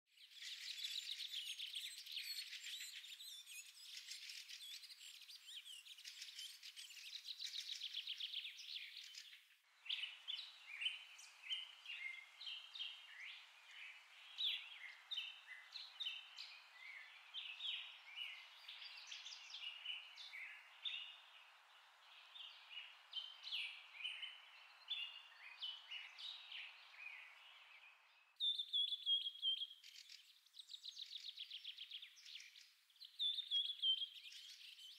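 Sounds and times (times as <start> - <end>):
birds chirping: 0.2 - 34.9.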